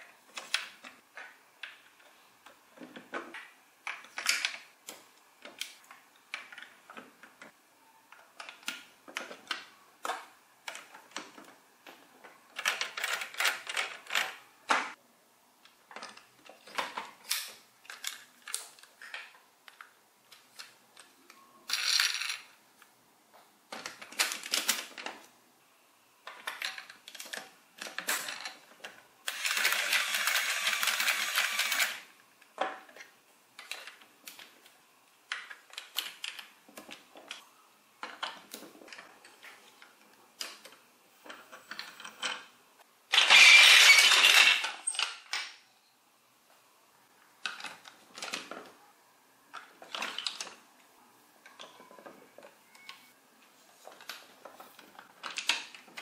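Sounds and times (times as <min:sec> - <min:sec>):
plastic toy blocks clicking: 0:00.3 - 0:07.5, 0:08.1 - 0:15.0, 0:23.7 - 0:25.3, 0:26.2 - 0:34.6, 0:35.3 - 0:37.4, 0:43.1 - 0:45.6, 0:47.4 - 0:48.7, 0:49.5 - 0:50.6, 0:53.9 - 0:56.0.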